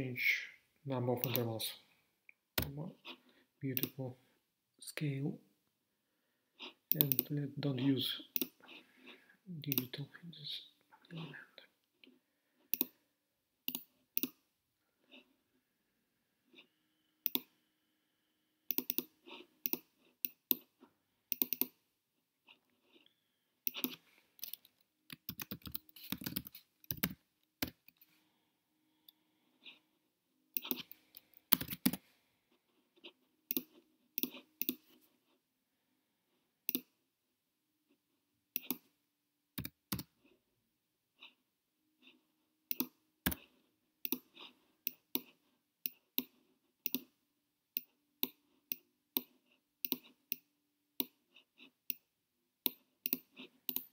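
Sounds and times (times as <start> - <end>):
computer mouse clicks: 1.2 - 1.5, 3.8 - 4.0, 6.9 - 7.4, 8.3 - 8.6, 9.7 - 9.9, 12.7 - 13.0, 13.7 - 14.4, 17.2 - 17.6, 18.7 - 20.7, 21.3 - 21.8, 23.6 - 28.1, 30.6 - 32.0, 33.5 - 35.0, 36.7 - 36.9, 38.6 - 38.9, 39.6 - 40.1, 42.7 - 43.4, 44.0 - 47.1, 47.8 - 51.2, 51.9 - 53.9.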